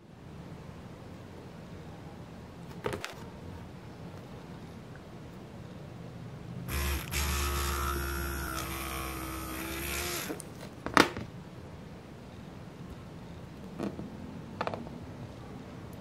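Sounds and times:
electric mini drill whining: 6.7s - 10.4s.

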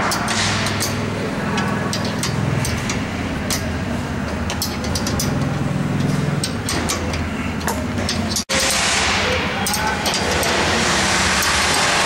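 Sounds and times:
wrench metallic clicks: 0.0s - 8.8s
low mechanical hum: 0.0s - 12.0s.

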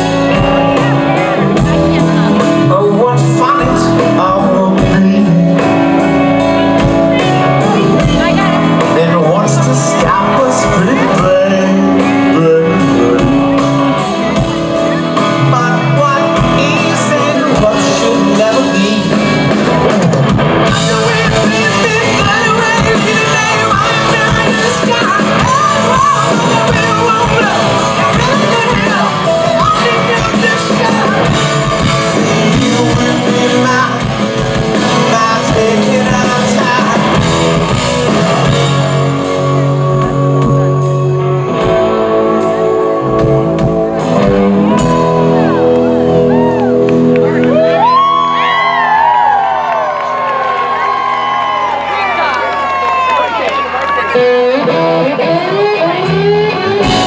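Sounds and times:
live rock band playing: 0.0s - 57.0s
man singing into microphone: 2.3s - 6.4s, 8.8s - 14.0s, 15.2s - 19.6s, 20.6s - 38.7s.

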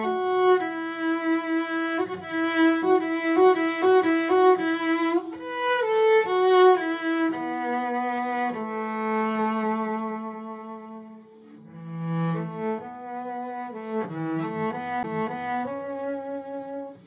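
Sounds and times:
bowed cello melody: 0.0s - 17.0s.

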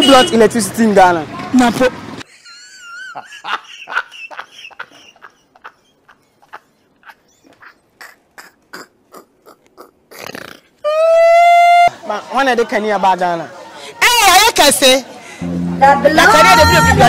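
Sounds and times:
man laughing hysterically: 2.3s - 10.0s, 10.9s - 11.9s.

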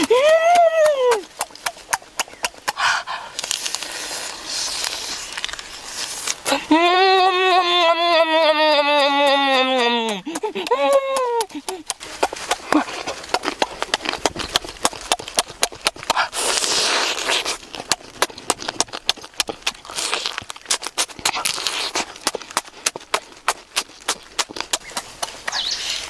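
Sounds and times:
wet lip smacks and chewing: 1.1s - 6.5s, 11.5s - 26.0s
noisy slurp: 16.0s - 18.9s.

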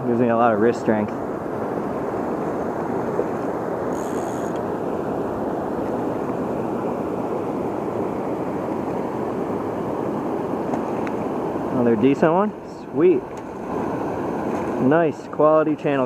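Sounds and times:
river water rushing over rocks: 4.6s - 15.9s.

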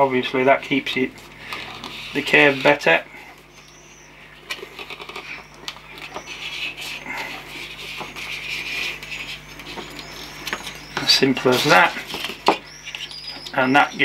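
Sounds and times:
plastic sheet clicking and squeaking: 4.5s - 6.6s.

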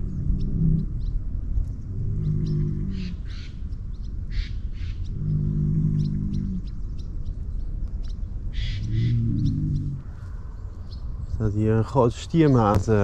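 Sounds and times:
bull lowing: 0.0s - 3.3s, 5.0s - 6.9s, 8.7s - 10.4s
small birds chirping: 0.0s - 13.0s.

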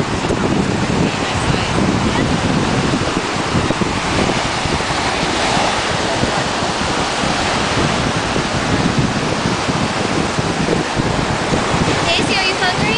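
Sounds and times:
ocean surf: 0.0s - 12.9s
wind buffeting microphone: 0.0s - 12.9s.

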